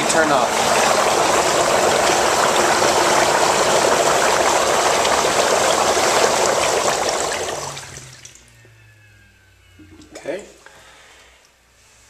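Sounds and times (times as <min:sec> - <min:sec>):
whirlpool jets churning water: 0:00.0 - 0:08.5.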